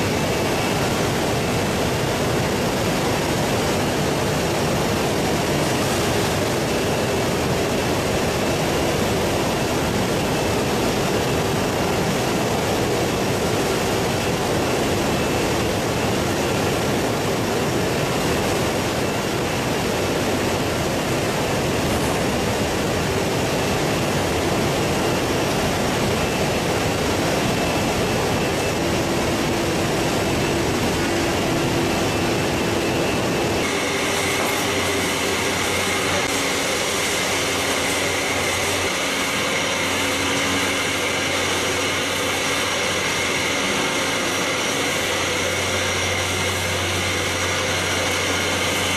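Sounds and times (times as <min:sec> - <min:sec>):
machine hum with high whine: 0:00.0 - 0:48.9
machinery running: 0:00.0 - 0:48.9.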